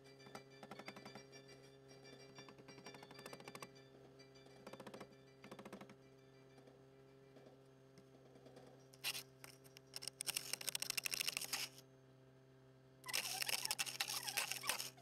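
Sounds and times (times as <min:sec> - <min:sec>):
ice scraped off windshield: 0:09.0 - 0:09.3, 0:09.9 - 0:11.8, 0:13.1 - 0:15.0.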